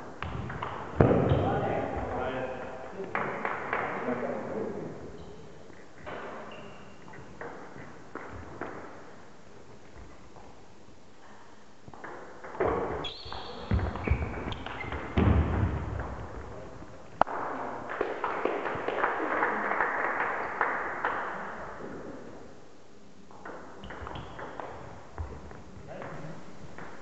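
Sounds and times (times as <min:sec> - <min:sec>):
people clapping: 0:03.0 - 0:04.3, 0:17.2 - 0:21.8
shoes squeaking and thudding: 0:12.6 - 0:15.9.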